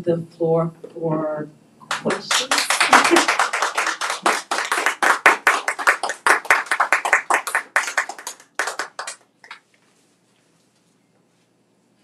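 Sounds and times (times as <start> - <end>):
audience clapping: 1.9 - 9.6.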